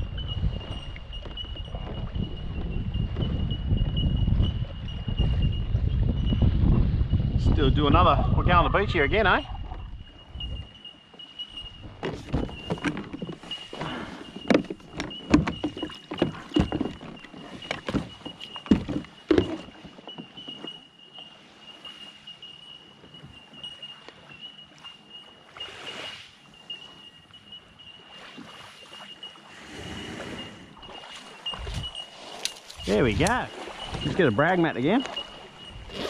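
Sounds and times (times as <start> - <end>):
water sloshing: 9.1 - 36.0
kayak gear knocking: 11.8 - 20.8, 31.6 - 35.3.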